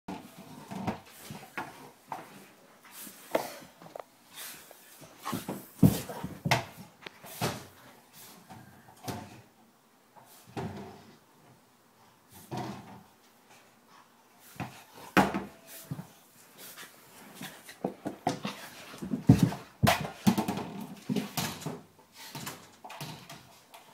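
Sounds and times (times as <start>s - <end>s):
ball bumping against walls and floor: 0.1s - 4.0s, 5.0s - 9.5s, 10.2s - 11.6s, 12.3s - 13.2s, 14.5s - 16.2s, 17.2s - 23.9s.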